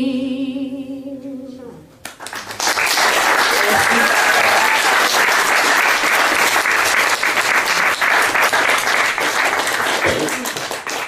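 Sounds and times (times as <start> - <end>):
audience applauding: 2.1 - 11.0.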